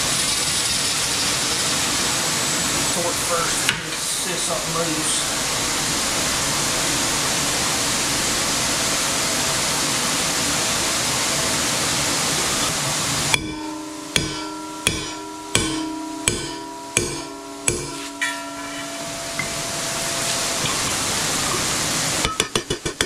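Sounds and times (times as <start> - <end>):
fan rushing air: 0.0 - 22.4
hammer striking metal: 13.3 - 21.3, 22.2 - 23.0.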